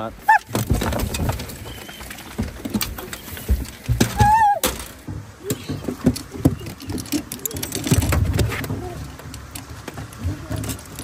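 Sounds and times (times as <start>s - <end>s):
dog whine: 4.1s - 4.6s.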